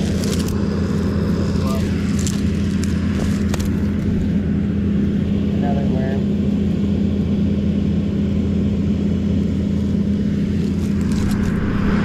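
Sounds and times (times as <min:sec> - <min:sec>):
dry stalks crackling: 0:00.0 - 0:04.5, 0:10.5 - 0:11.8
diesel tractor engine idling: 0:00.0 - 0:11.2.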